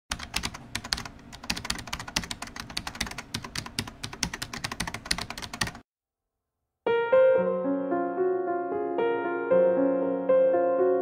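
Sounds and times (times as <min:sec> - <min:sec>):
computer keyboard typing: 0:00.1 - 0:05.8.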